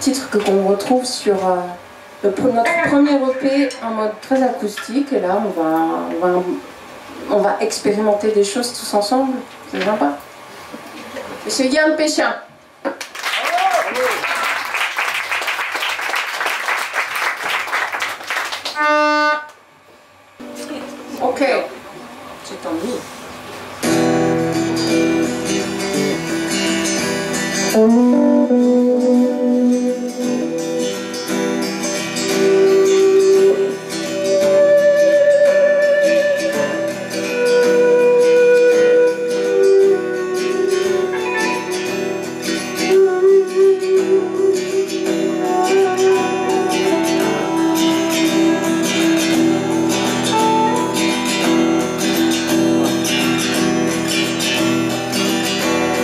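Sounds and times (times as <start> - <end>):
wavering lead guitar notes: 2.5 - 4.1, 23.8 - 56.0
live band playing guitar song: 23.7 - 56.0.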